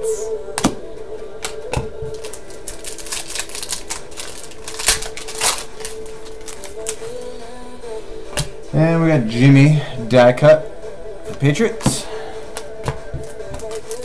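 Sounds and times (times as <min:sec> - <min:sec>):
trading cards clicking and snapping: 0:01.4 - 0:07.3, 0:11.8 - 0:14.0.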